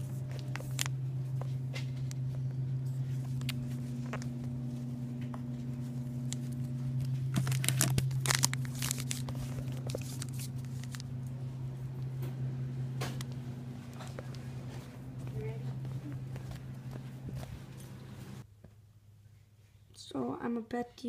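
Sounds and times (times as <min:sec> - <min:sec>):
card pack wrappers crinkling: 0:00.0 - 0:01.0, 0:01.7 - 0:12.1
low hum: 0:00.0 - 0:18.5.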